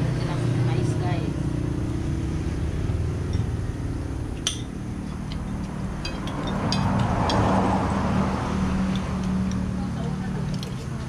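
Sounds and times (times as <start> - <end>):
road traffic rumble: 0.0 - 11.0
vehicle passing: 0.0 - 11.0
dishes and cutlery clinking: 4.5 - 7.7.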